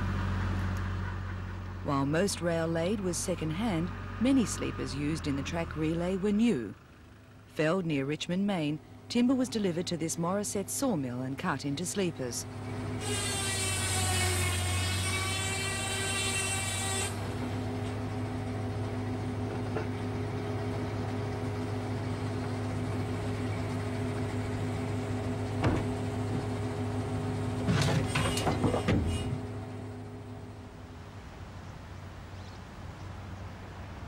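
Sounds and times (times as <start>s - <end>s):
saw machinery humming: 9.0s - 30.8s
circular saw whine: 12.5s - 30.7s.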